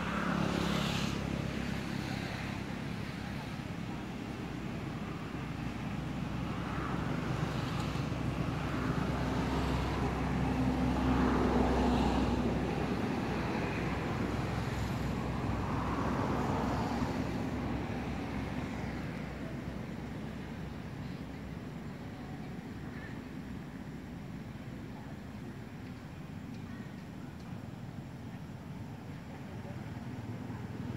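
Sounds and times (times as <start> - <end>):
motor vehicle passing by: 0.0 - 4.4, 5.2 - 19.8.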